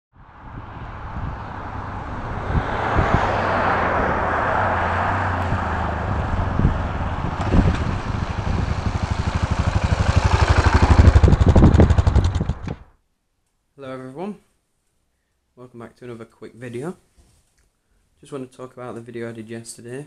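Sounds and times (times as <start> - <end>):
motorcycle passing: 0.2 - 12.9.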